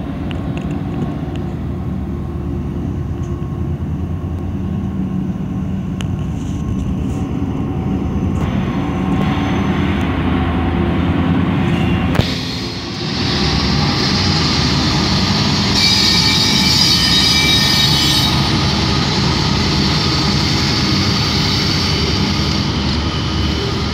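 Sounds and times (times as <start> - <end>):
diesel locomotive engines droning: 0.0 - 23.9.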